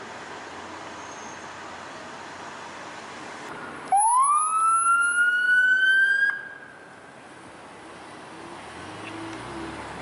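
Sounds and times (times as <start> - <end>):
street noise: 0.0 - 10.0
police siren wail: 3.9 - 6.6.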